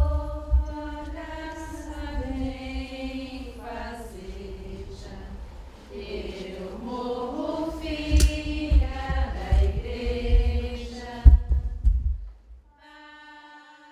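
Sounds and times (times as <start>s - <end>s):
group of voices singing: 0.0s - 11.7s
heavy low thumps: 7.9s - 12.7s.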